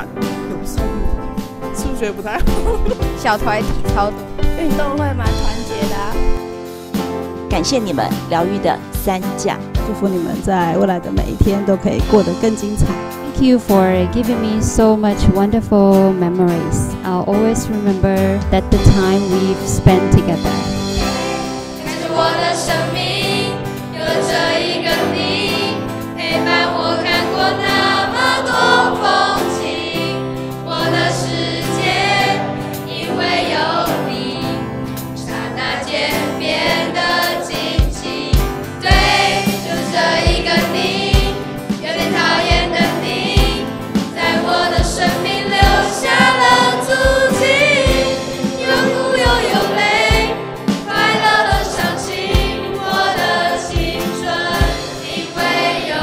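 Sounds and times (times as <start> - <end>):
choir singing pop song: 0.0 - 1.2, 15.8 - 56.0
steady drum beat: 0.0 - 33.8, 35.4 - 56.0
band accompaniment: 0.0 - 56.0.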